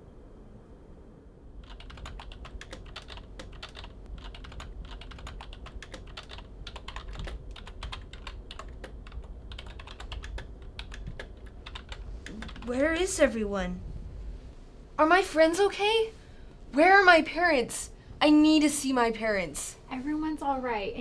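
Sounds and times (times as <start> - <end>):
computer keyboard typing: 1.6 - 12.8.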